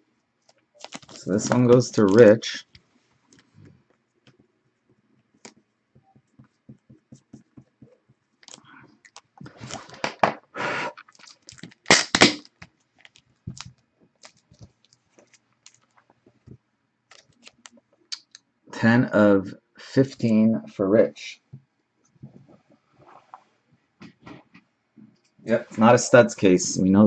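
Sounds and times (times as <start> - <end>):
plastic sleeves rustling: 0.4 - 18.0
trading cards clicking: 0.8 - 2.3.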